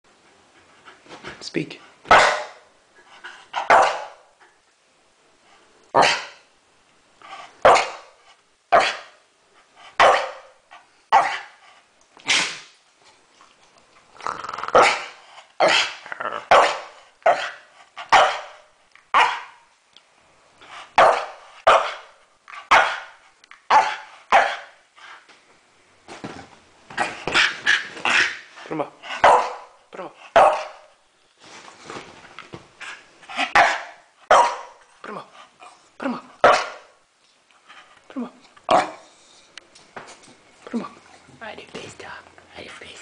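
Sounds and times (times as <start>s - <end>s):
dog barking: 2.1s - 2.6s, 3.6s - 4.2s, 6.0s - 6.4s, 7.6s - 8.1s, 8.7s - 9.2s, 10.0s - 10.5s, 11.1s - 11.5s, 16.5s - 19.6s, 21.0s - 22.1s, 22.7s - 24.8s, 29.2s - 29.8s, 30.4s - 30.9s, 33.5s - 34.8s, 36.4s - 36.9s.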